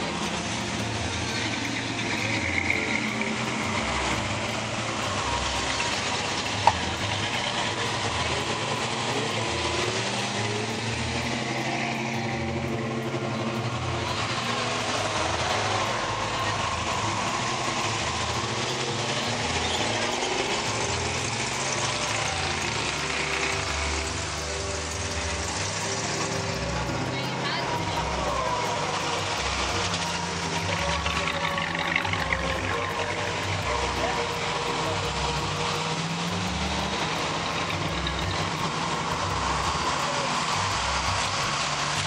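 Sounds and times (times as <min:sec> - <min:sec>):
cars driving slowly past: 0:00.0 - 0:42.0.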